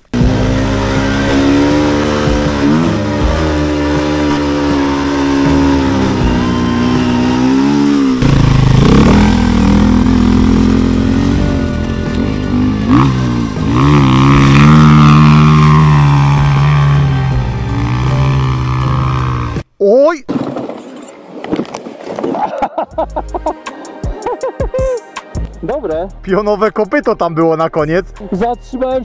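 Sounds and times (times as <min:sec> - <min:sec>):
motorcycle engine revving: 0:00.0 - 0:19.6.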